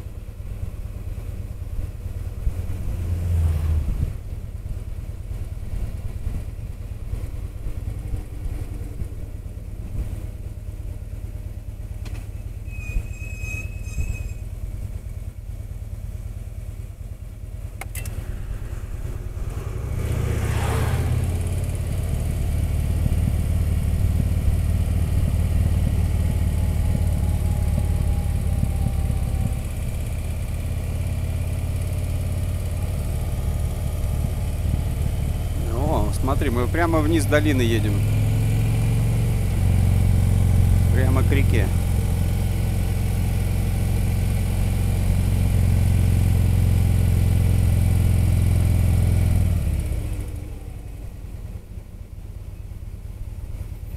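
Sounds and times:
road and wind noise: 0:00.0 - 0:53.9
motorcycle engine cruising: 0:14.4 - 0:53.9.

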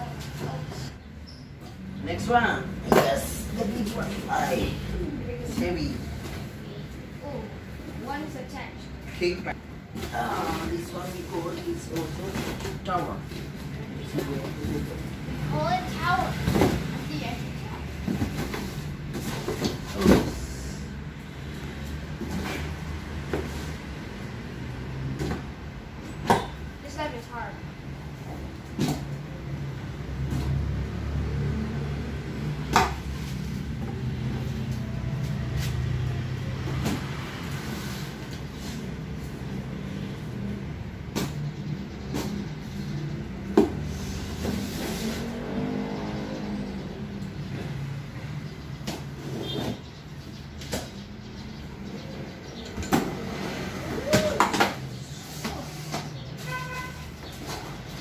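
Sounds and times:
cardboard box scraping and rustling: 0:44.0 - 0:45.8.

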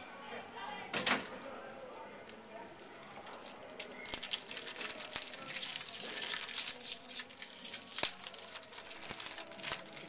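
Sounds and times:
wrapper crinkling and tearing: 0:03.1 - 0:10.0.

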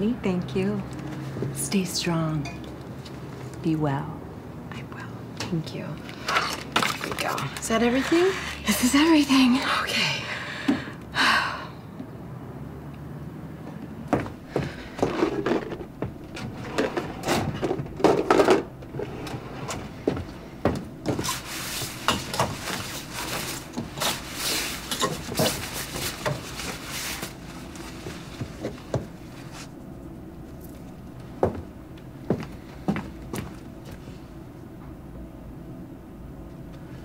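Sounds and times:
fabric rustling: 0:21.1 - 0:29.8.

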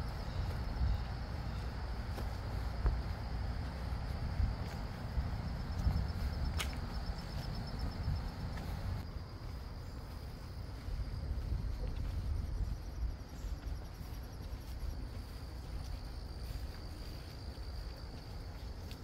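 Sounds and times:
insects trilling: 0:00.0 - 0:19.0
low rumble: 0:02.8 - 0:09.4.

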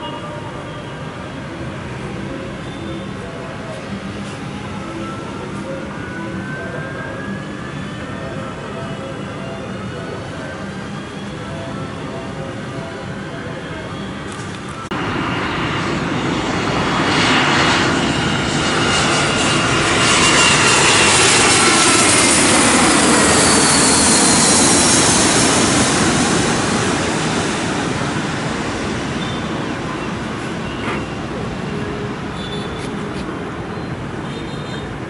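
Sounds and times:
jet airliner passing overhead: 0:00.0 - 0:35.0
jet engine whine: 0:00.0 - 0:35.0.

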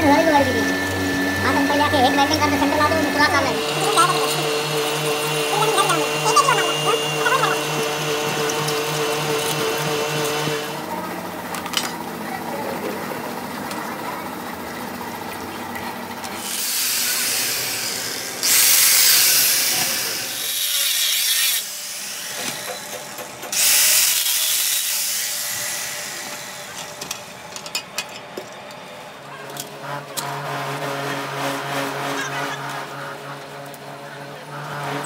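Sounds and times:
angle grinder grinding metal: 0:00.0 - 0:10.8, 0:16.2 - 0:27.7.

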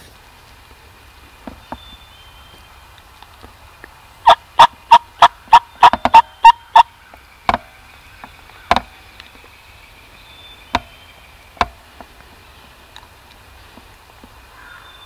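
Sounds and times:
turkey clucking and yelping: 0:04.2 - 0:07.0.

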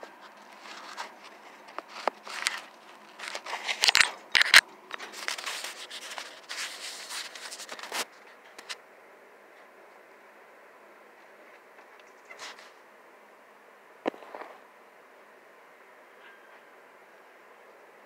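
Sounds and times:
phone handling noise: 0:03.4 - 0:05.4.

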